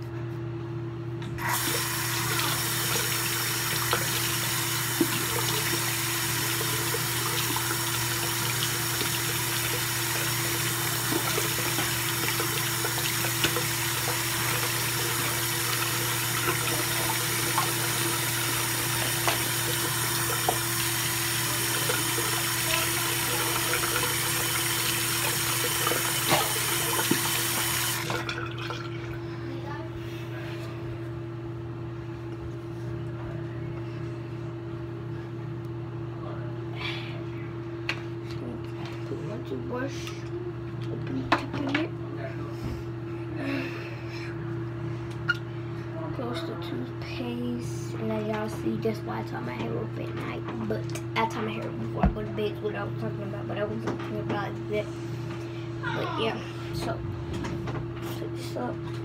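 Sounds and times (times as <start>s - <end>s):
electric toothbrush buzzing: 1.4s - 28.1s
sink tap running: 1.4s - 29.2s.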